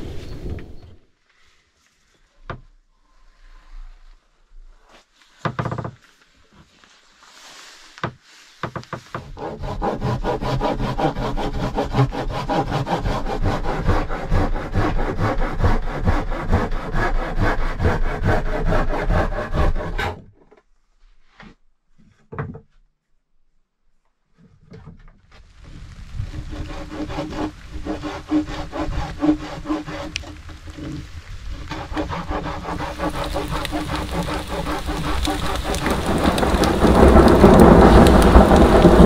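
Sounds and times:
hand saw cutting wood: 9.2 - 20.3, 26.3 - 39.0.

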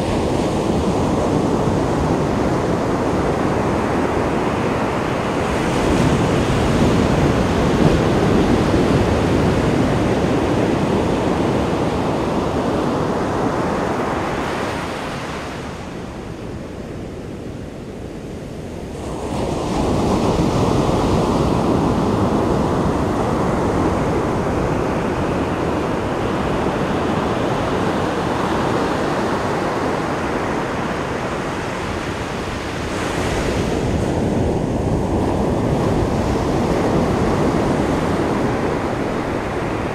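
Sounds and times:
ocean surf breaking: 18.6 - 39.9.

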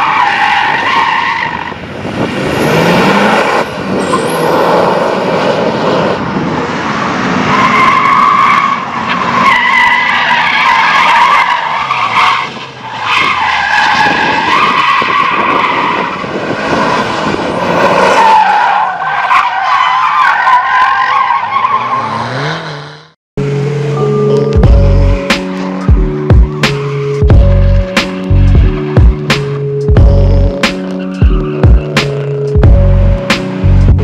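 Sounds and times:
car engine revving: 0.9 - 9.6, 21.4 - 34.0.

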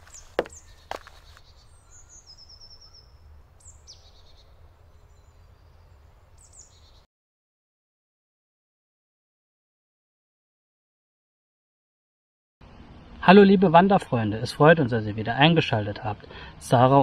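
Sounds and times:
bird calls: 0.0 - 7.1.

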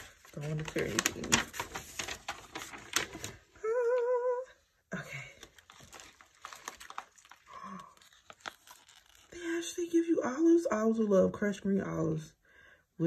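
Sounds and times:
packaging paper rustling: 0.0 - 3.6, 5.4 - 9.6
woman humming: 3.6 - 4.6.

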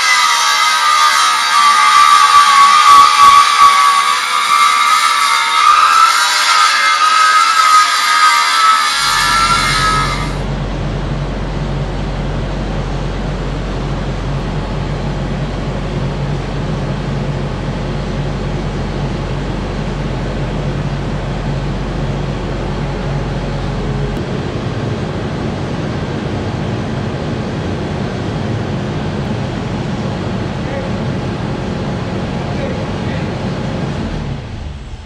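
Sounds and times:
hydraulics: 0.0 - 25.6
diesel engine running: 9.0 - 35.0.

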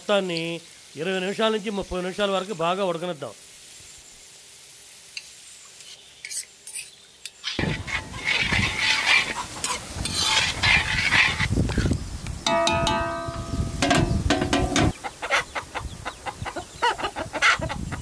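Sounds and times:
gravy sizzling and bubbling: 0.0 - 15.2
spoon scraping in a pan: 5.2 - 11.9.

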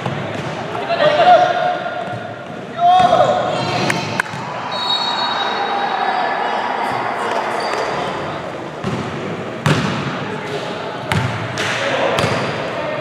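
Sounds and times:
echoing hall background noise: 0.0 - 13.0
basketball bouncing: 8.8 - 10.0, 11.1 - 11.4.

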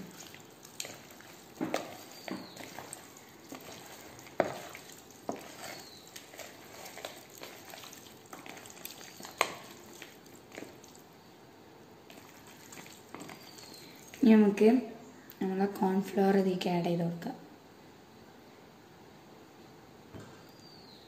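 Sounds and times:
hands squelching raw chicken: 0.0 - 11.1, 12.1 - 14.2.

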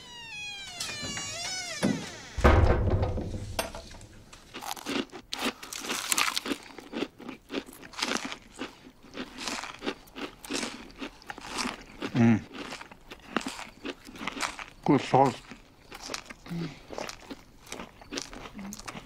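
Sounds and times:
low thud: 1.8 - 4.3
people chewing crunchy toast: 4.4 - 19.0.

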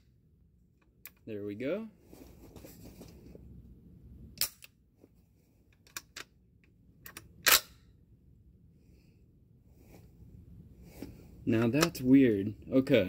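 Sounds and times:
gun mechanism clicks and cracks: 7.0 - 7.8.

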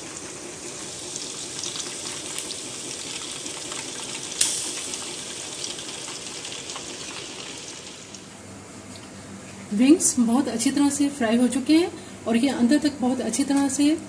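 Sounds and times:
chicken frying in hot oil: 0.0 - 8.4.

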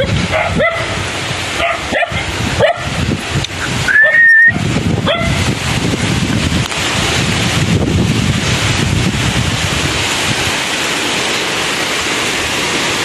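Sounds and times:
dog barking yips: 0.0 - 1.0, 1.6 - 2.9, 3.6 - 5.4
wind rumble on microphone: 0.0 - 11.2
dog whining: 3.6 - 4.6.

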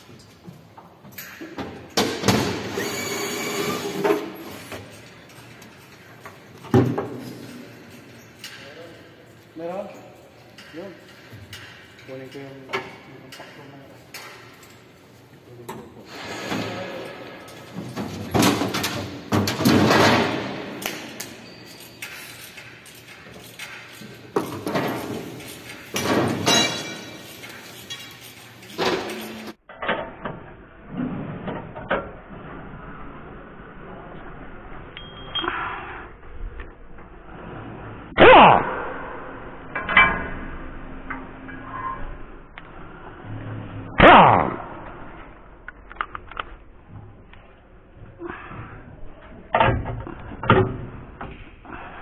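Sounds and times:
metal parts and tools rattling: 4.3 - 29.8
hand tools clanking on metal: 20.8 - 29.6
ringing metal clatter: 24.9 - 29.6.

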